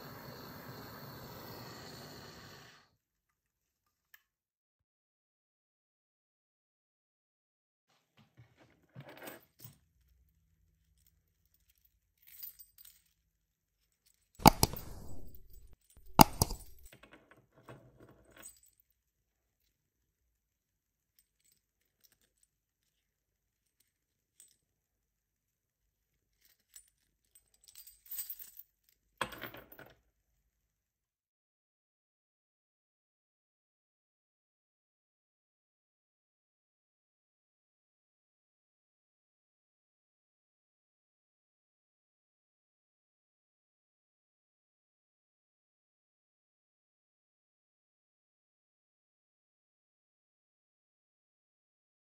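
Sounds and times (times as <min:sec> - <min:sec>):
metal rings jangling: 0:14.1 - 0:16.9, 0:26.4 - 0:28.8
sharp metal clanks: 0:14.4 - 0:16.9.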